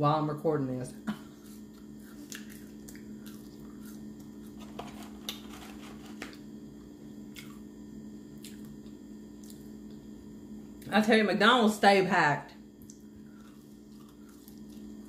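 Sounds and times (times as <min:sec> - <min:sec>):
steady low hum: 0:00.0 - 0:15.0
chewing and mouth sounds: 0:01.4 - 0:04.6, 0:07.3 - 0:07.7, 0:08.3 - 0:10.0, 0:12.8 - 0:15.0.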